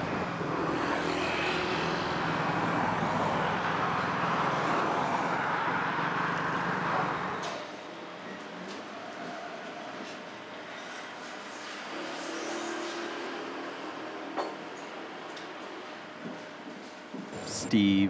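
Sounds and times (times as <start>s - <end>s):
cars driving past: 0.0s - 8.9s, 10.0s - 16.5s.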